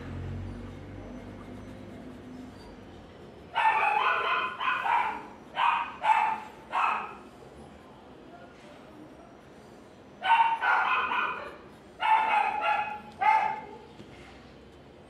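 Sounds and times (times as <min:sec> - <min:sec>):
dog barking: 0:03.5 - 0:07.3, 0:10.2 - 0:13.8.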